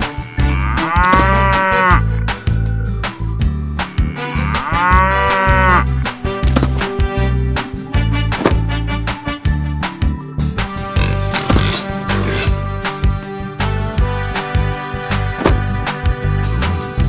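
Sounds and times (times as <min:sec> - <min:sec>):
cow mooing: 0:00.0 - 0:02.6, 0:03.8 - 0:06.0
music with bass beat: 0:00.0 - 0:17.0.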